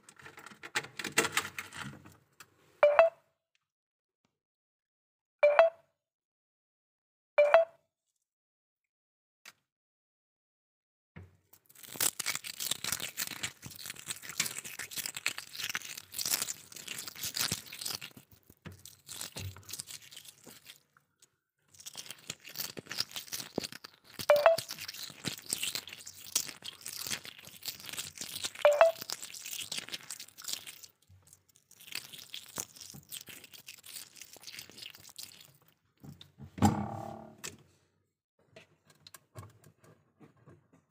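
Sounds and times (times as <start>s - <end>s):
deep thump: 36.6s - 37.4s.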